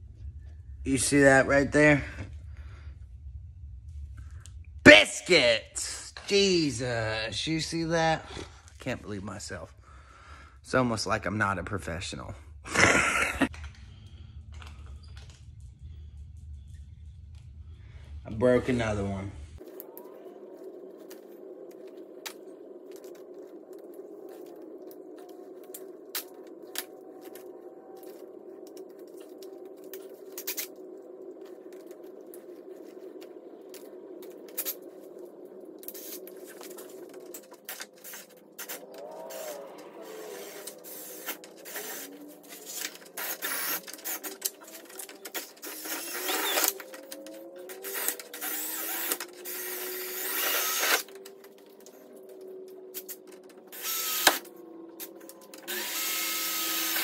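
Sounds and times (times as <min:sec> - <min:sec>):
power drill drilling metal: 0:43.2 - 0:44.2, 0:45.6 - 0:46.7, 0:47.8 - 0:51.0, 0:53.8 - 0:54.4, 0:55.6 - 0:57.0.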